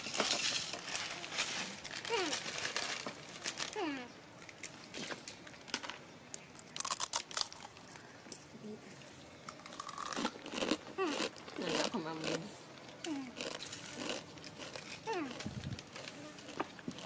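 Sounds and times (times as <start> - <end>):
plastic snack bag crinkling: 0.0 - 8.0, 13.4 - 17.0
crunching of dry snack food: 4.4 - 8.1, 9.5 - 17.0.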